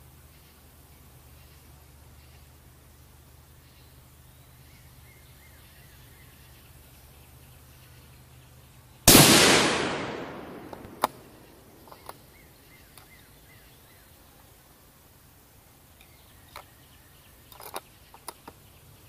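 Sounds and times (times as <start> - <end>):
rifle shot: 9.1 - 11.9
rifle bolt clicks: 9.1 - 12.2.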